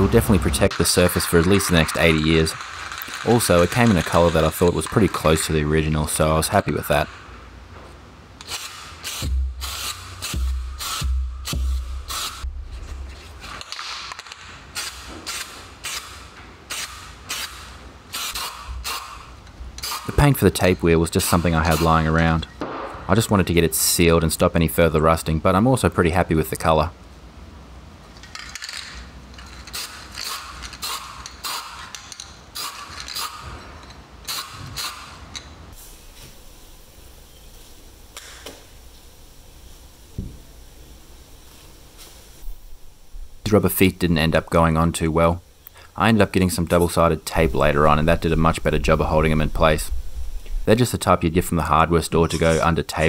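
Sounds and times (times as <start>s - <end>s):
spray paint can hissing: 0.8s - 5.4s, 8.4s - 12.5s, 14.7s - 19.2s, 29.6s - 31.9s.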